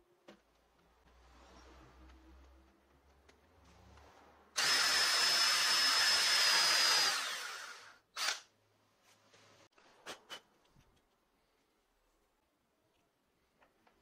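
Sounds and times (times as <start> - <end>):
electric drill whining into wood: 4.6 - 8.4.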